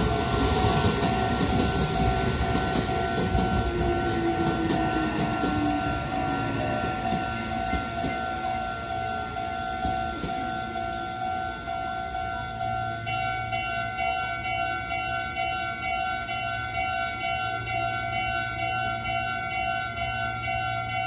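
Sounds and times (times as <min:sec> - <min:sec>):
higher pulsing alarm tone: 0:00.0 - 0:14.8
level crossing alarm ringing: 0:00.0 - 0:21.0
train clattering: 0:00.0 - 0:21.0.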